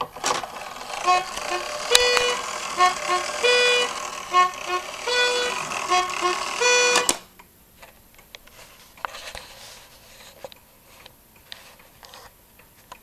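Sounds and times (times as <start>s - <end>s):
clock reed horn tune: 0.0s - 7.3s
clock ticking: 0.0s - 7.3s.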